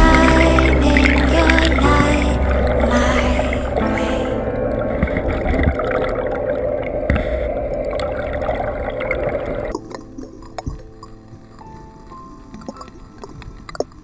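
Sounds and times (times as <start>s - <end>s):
soundtrack music with held tones: 0.0s - 7.1s
underwater bubbling water: 0.0s - 14.0s.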